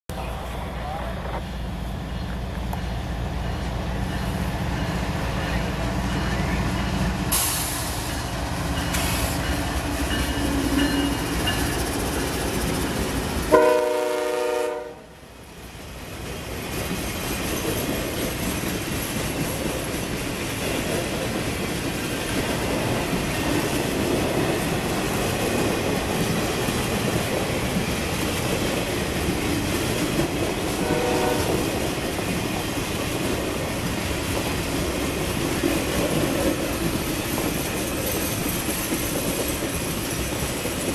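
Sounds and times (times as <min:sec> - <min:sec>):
freight train rolling: 0:00.1 - 0:40.9
locomotive horn blast: 0:13.5 - 0:15.1, 0:30.8 - 0:31.6.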